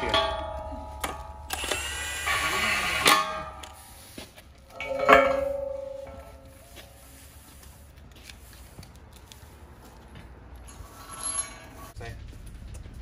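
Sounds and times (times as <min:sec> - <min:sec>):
ringing metal clang: 0:00.0 - 0:01.6, 0:02.2 - 0:03.6, 0:04.7 - 0:06.5
impact wrench burst: 0:01.5 - 0:03.7.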